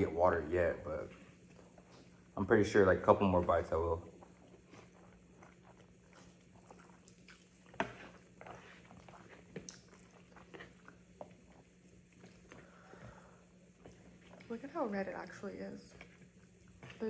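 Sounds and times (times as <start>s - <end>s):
people chewing noodles: 1.0s - 14.7s
slurping noodles: 4.1s - 13.1s.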